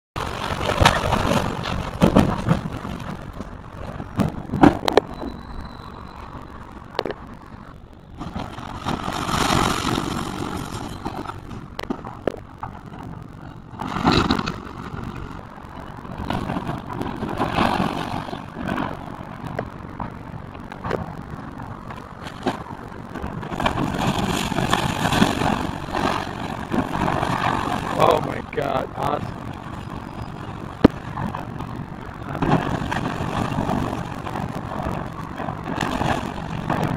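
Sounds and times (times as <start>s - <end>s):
debris breaking and clattering: 0.2s - 5.1s, 8.2s - 13.0s
excavator engine running: 0.2s - 36.9s.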